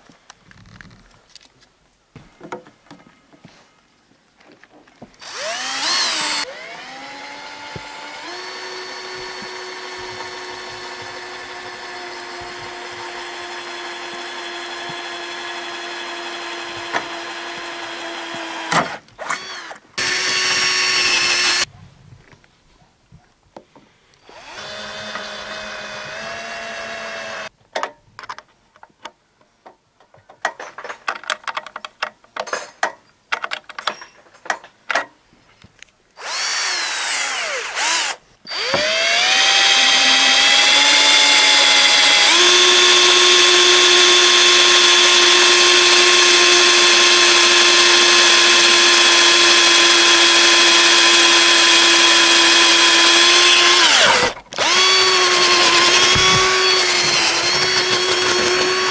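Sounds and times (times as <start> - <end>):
cordless drill whining: 5.2 - 21.7, 24.2 - 27.5, 36.2 - 58.9.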